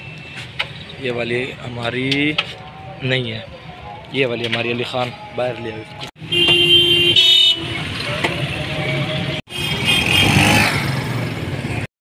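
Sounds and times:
vehicle horns honking: 6.2 - 10.7
motorcycle engines running: 9.6 - 11.9.

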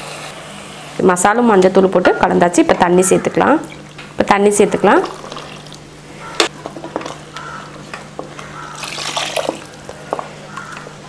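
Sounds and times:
water pouring and splashing: 5.0 - 5.8, 8.8 - 10.0.

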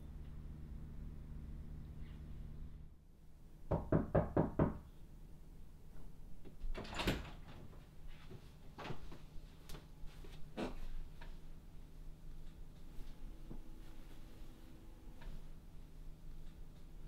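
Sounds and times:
knocking on door: 3.7 - 4.8.

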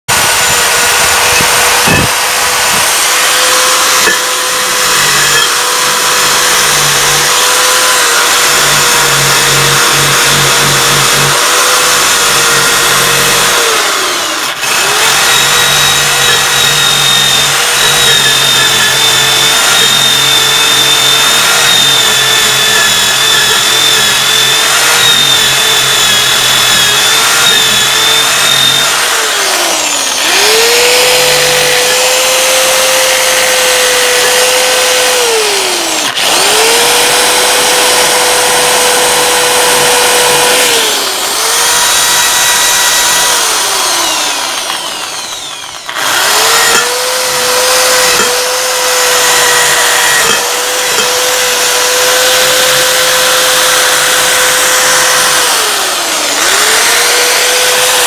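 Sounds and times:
electric drill motor whine: 0.0 - 58.0
wheel grinding metal: 0.1 - 32.1, 42.3 - 58.0.

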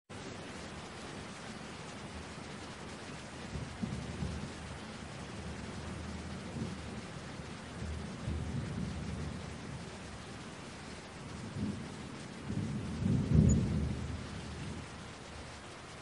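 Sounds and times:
rain hiss: 0.1 - 16.0
thunder rumble: 3.4 - 16.0.

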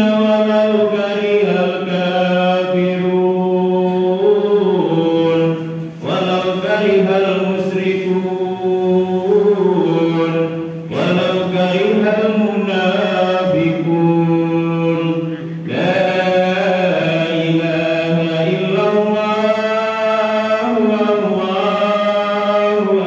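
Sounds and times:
man chanting: 0.0 - 23.0.

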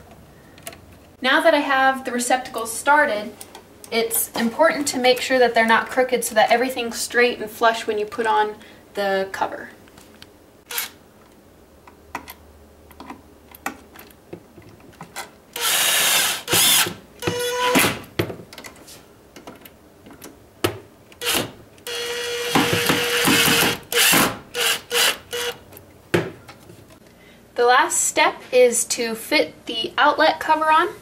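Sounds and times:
cordless drill driving screws: 10.7 - 11.0, 15.6 - 17.9, 21.2 - 25.6.

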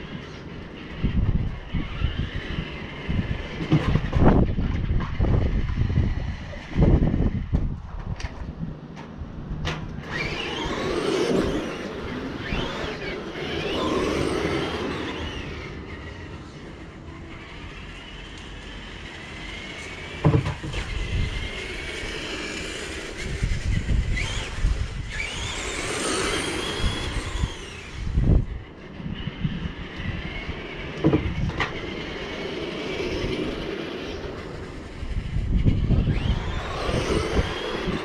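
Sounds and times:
toy car electric motor whining: 0.0 - 7.6, 10.0 - 38.0.

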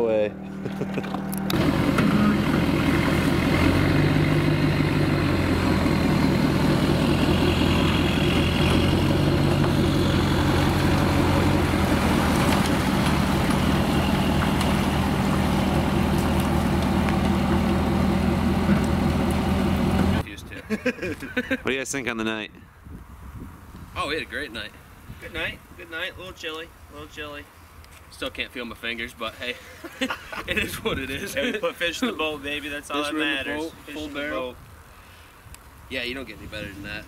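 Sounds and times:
engine idling: 1.1 - 20.2.

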